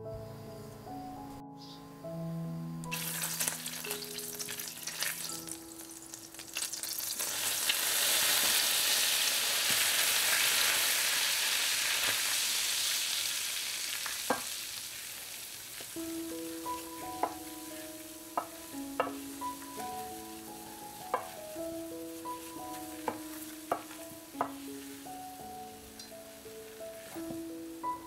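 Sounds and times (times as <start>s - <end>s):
butter sizzling in a pan: 2.9s - 28.0s
wooden spoon stirring: 15.8s - 27.4s.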